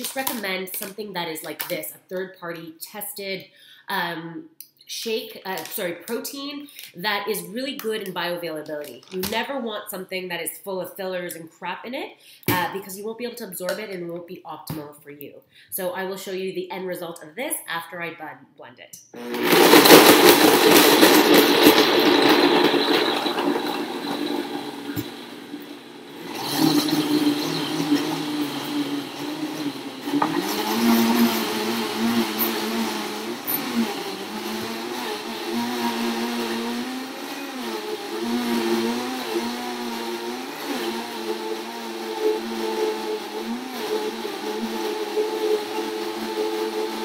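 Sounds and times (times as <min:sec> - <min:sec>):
blender blending ice: 0:00.0 - 0:00.9, 0:19.2 - 0:47.0.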